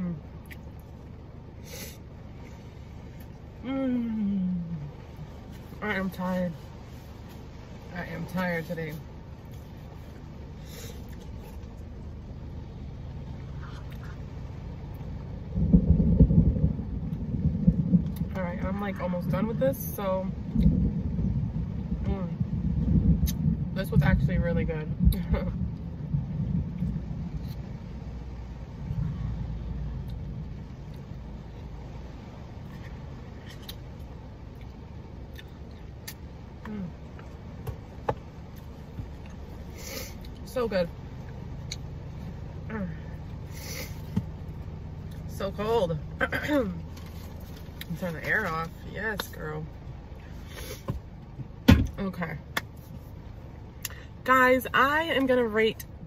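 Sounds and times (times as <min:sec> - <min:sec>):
heavy rain on a car: 0:00.0 - 0:56.0
thunder rumbling: 0:15.3 - 0:31.8.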